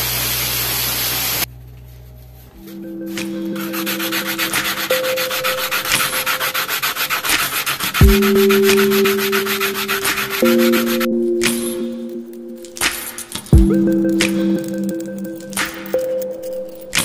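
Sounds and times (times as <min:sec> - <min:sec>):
hand sanding metal tube: 0:02.8 - 0:11.7.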